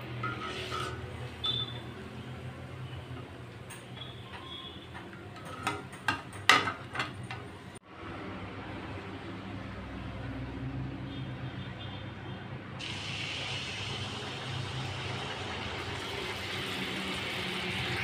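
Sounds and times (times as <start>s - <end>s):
batter sizzling in hot oil: 12.8s - 18.0s.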